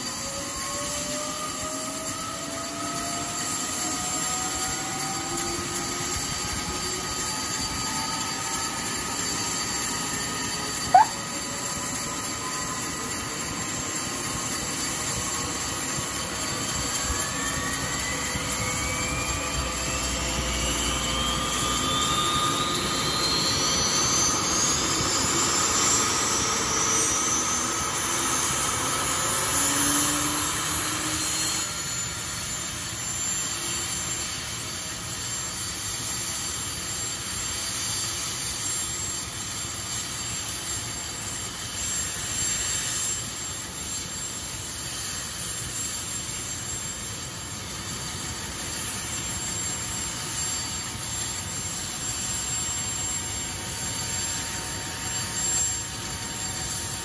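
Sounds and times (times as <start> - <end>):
helicopter rotors rumbling: 0.0 - 33.4, 47.3 - 57.0
helicopter turbine whine: 0.0 - 57.0.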